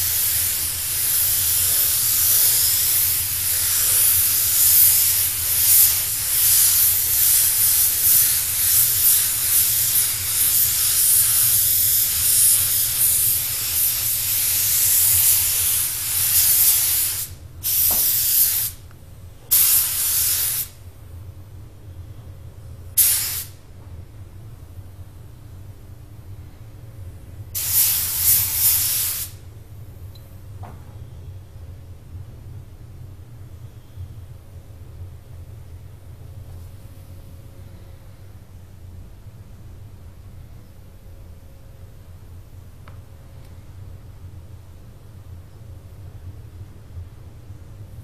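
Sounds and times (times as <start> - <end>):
spray gun hissing: 0.0 - 18.8, 19.5 - 20.8, 23.0 - 23.6, 27.6 - 29.4.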